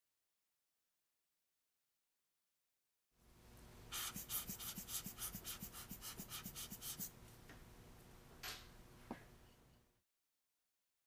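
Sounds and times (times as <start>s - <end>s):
air blower puffs: 3.9s - 7.1s.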